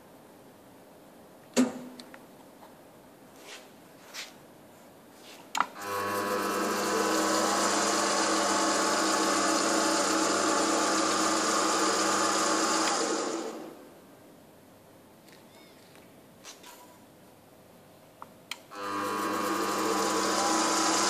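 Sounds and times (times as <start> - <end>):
electric motor humming: 5.8 - 13.8, 18.7 - 21.0.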